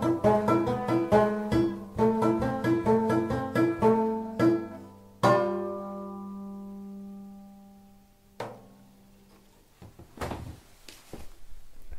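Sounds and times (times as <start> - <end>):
banjo chord ringing: 0.0 - 8.9.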